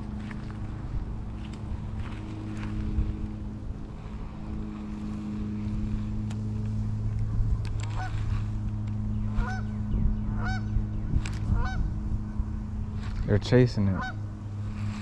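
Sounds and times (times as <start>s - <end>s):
steady low hum: 0.0s - 15.0s
geese honking: 7.8s - 8.6s, 9.2s - 12.0s, 13.8s - 14.4s.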